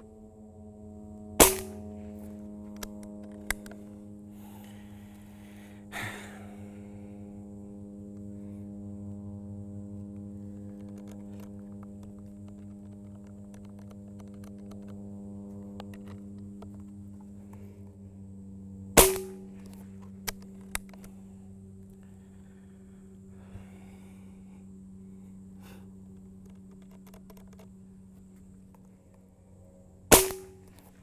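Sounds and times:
steady low hum: 0.0s - 31.0s
air rifle shot: 1.4s - 1.8s, 19.0s - 19.5s, 30.1s - 30.6s.

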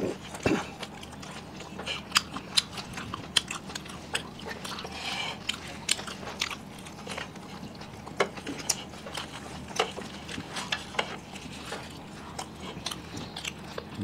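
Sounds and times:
people chewing crunchy food: 0.0s - 14.0s.

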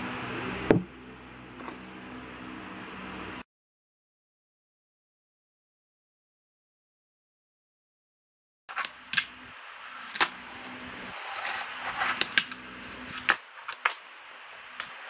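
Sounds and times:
fingerboard wheels rolling on wood: 10.0s - 14.0s.

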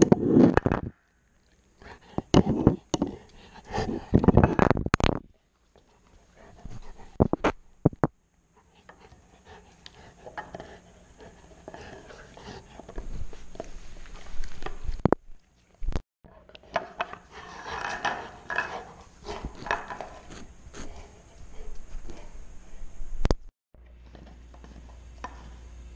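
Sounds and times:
dog chewing bone: 8.6s - 15.1s, 16.3s - 22.3s.

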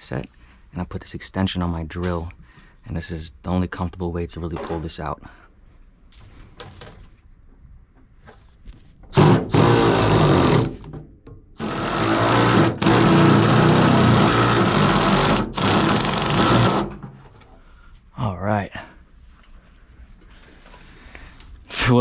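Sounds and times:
cordless drill spinning: 9.2s - 10.9s, 11.6s - 17.0s.

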